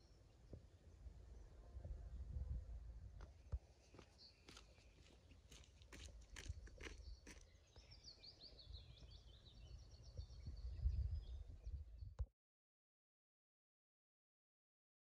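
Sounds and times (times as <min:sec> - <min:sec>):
bird chirping: 0:03.8 - 0:12.2.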